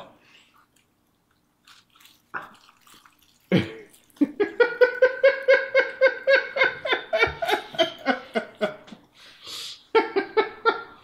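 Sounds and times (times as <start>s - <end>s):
crackling chewing: 0.5s - 5.0s
person laughing: 3.5s - 9.0s.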